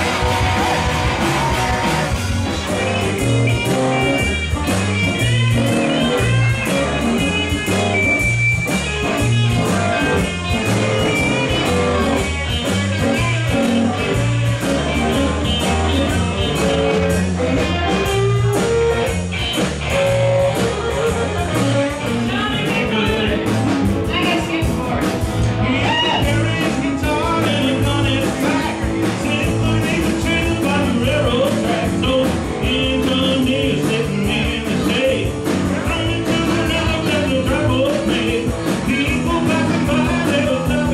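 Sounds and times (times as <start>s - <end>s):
bass guitar: 0.0s - 40.9s
drums: 0.0s - 40.9s
electric guitar: 0.0s - 40.9s
person singing: 21.8s - 40.9s.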